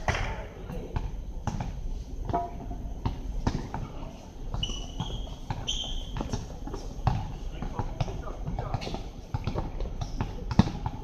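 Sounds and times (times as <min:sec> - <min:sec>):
shoe squeaks: 0:04.5 - 0:06.4
basketball bouncing on hard court: 0:04.5 - 0:11.0.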